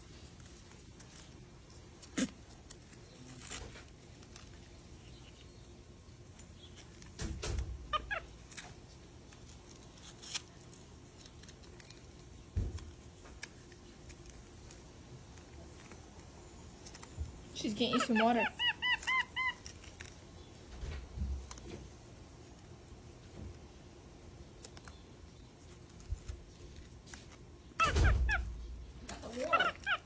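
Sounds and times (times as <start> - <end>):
high-pitched animal call: 7.4 - 8.7, 17.5 - 20.2, 27.7 - 30.0.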